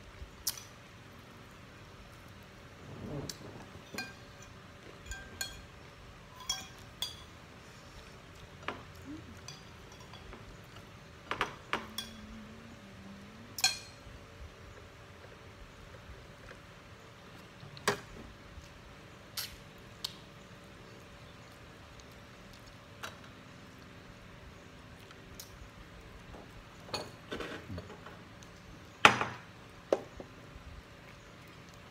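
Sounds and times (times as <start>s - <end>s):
cutlery clinking on plates: 3.9s - 5.7s, 6.3s - 7.3s.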